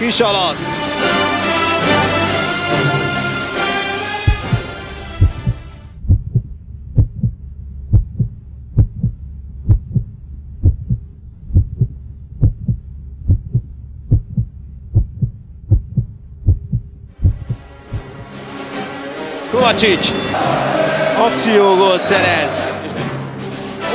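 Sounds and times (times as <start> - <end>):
music: 0.0 - 6.0, 17.2 - 23.9
heartbeat double thump: 4.2 - 18.4
low hum: 4.2 - 18.4.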